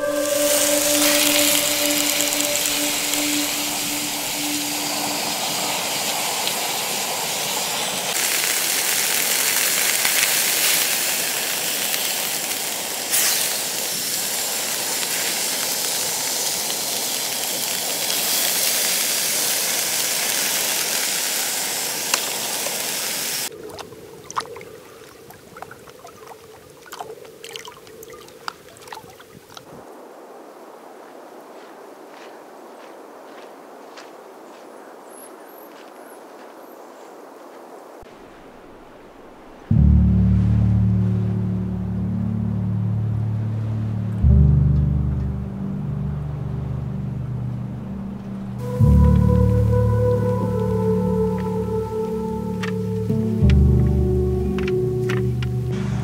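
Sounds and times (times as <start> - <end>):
fish sizzling in a frying pan: 4.4 - 23.5.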